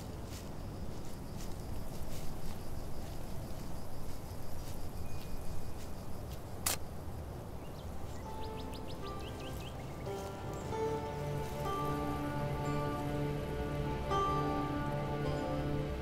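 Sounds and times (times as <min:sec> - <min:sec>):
footsteps crunching on leaves: 0:00.0 - 0:06.9, 0:08.0 - 0:15.6
outdoor background noise: 0:00.0 - 0:16.0.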